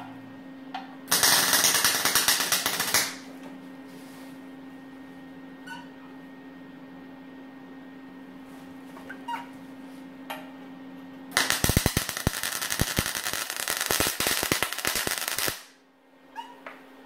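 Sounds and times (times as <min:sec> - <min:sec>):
steady low hum: 0:00.0 - 0:17.0
welding arc crackling and popping: 0:01.1 - 0:03.3, 0:11.3 - 0:15.8.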